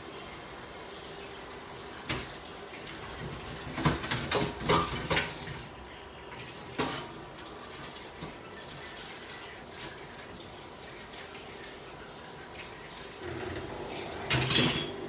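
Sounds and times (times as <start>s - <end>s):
kitchen knocks and clinks: 3.2s - 5.5s, 14.2s - 15.0s.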